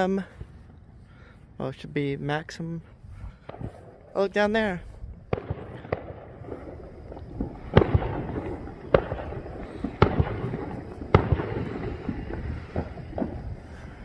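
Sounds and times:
loud firework bangs: 3.4s - 14.0s
faint firework pops: 5.3s - 13.6s.

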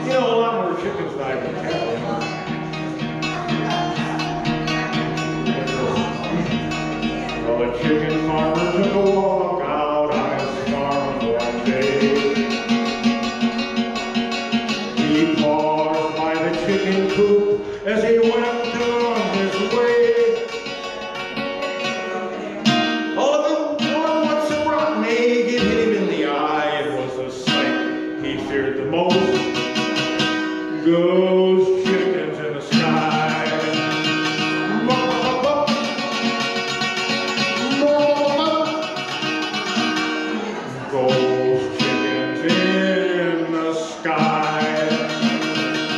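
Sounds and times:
guitar chords and picked notes: 0.0s - 45.9s
man singing: 0.0s - 45.9s.

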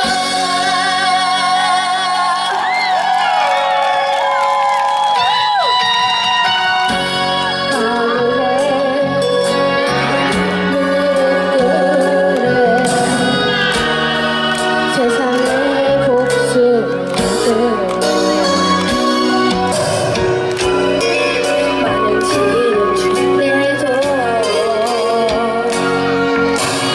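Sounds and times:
boy singing into a microphone: 0.0s - 2.8s, 7.4s - 14.1s, 14.9s - 18.6s, 21.9s - 26.3s
pop backing track: 0.0s - 3.2s, 5.0s - 26.9s.

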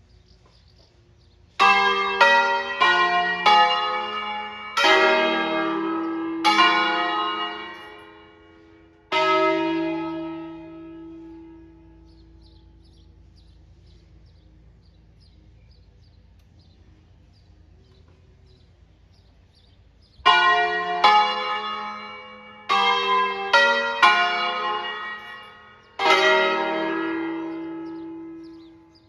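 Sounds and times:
church bells ringing: 1.5s - 15.4s, 20.1s - 29.0s.

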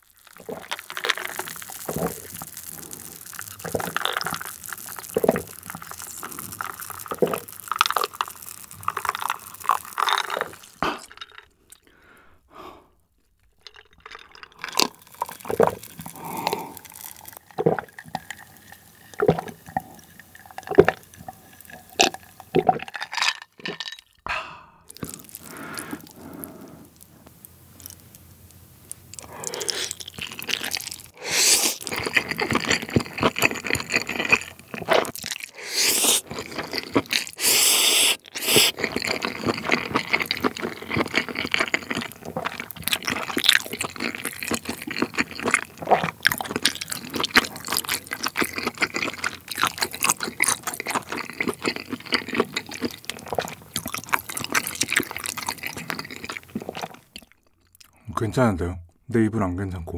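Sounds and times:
cola fizzing: 0.2s - 11.9s, 13.6s - 24.0s
person swallowing: 9.0s - 12.9s, 13.7s - 18.0s, 23.6s - 27.0s, 35.5s - 38.8s.

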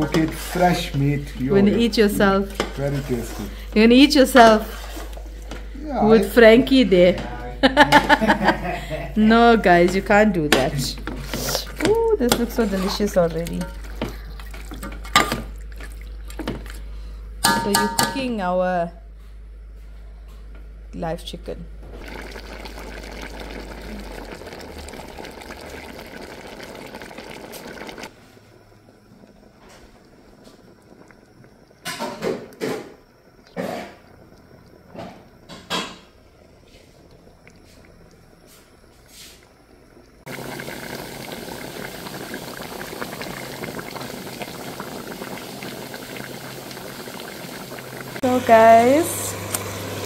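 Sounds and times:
curry bubbling in pot: 9.7s - 16.9s, 22.0s - 50.0s.

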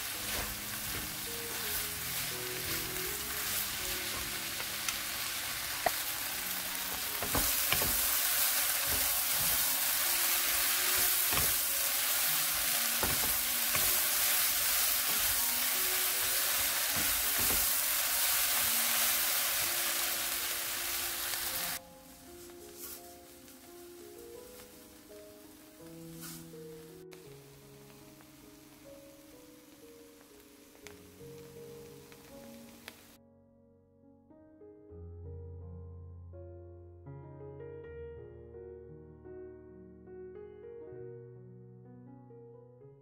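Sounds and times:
wooden spatulas scraping and knocking: 0.0s - 4.4s, 6.9s - 9.8s, 10.6s - 11.8s, 13.0s - 14.2s, 16.9s - 17.8s
food sizzling in a pan: 0.0s - 21.8s, 22.4s - 26.6s, 27.2s - 33.2s
soft background music: 0.0s - 43.0s.

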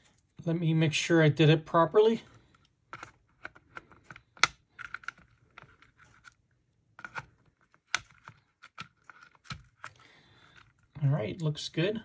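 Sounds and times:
small clicks and taps of handling: 2.4s - 6.4s.

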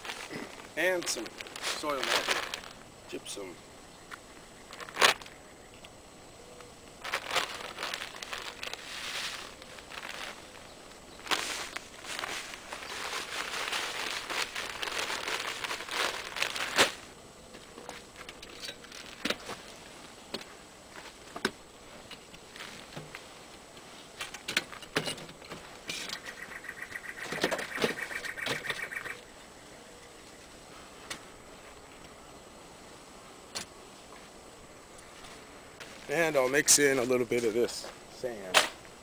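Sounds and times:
wheelbarrow knocks and scrapes: 24.2s - 26.0s.

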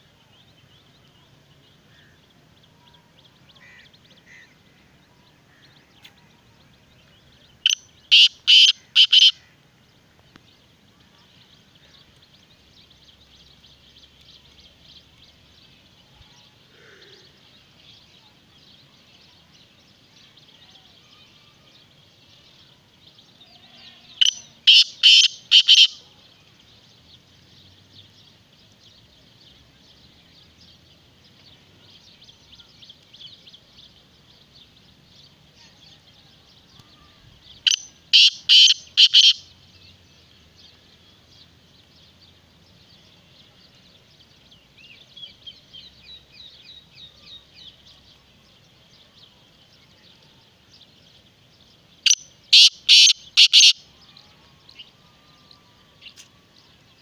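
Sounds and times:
high chirping background: 0.0s - 57.0s
bird calling harshly: 7.7s - 9.5s, 24.2s - 26.0s, 37.6s - 39.4s, 52.0s - 53.8s.

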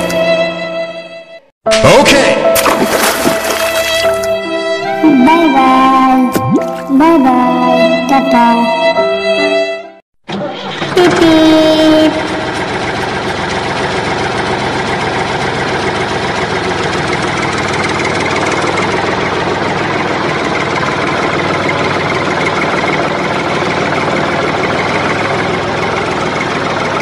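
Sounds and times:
loud pitched horn blast: 7.0s - 13.0s
heavy vehicle engine idling: 10.3s - 27.0s.

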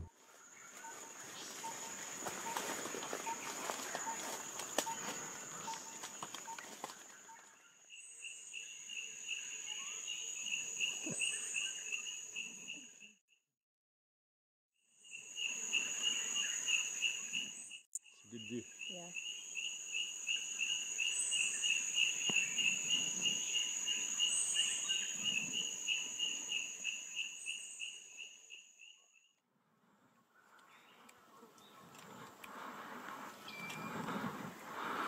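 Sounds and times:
insects calling: 0.0s - 13.1s, 15.0s - 29.2s.

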